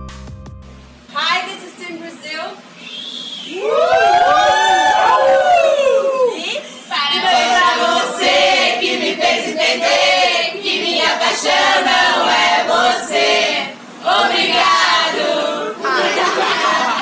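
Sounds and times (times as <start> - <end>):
group of people chanting: 7.1 - 17.0.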